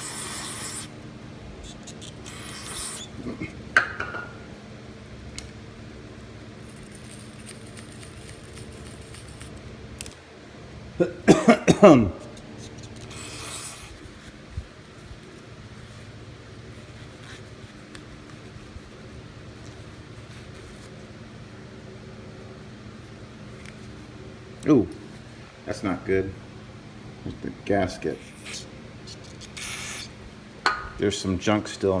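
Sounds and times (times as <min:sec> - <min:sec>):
aerosol spray hissing: 0:00.0 - 0:00.9, 0:02.3 - 0:03.1, 0:29.6 - 0:30.1
squeaky strokes: 0:00.0 - 0:00.9, 0:01.6 - 0:03.2.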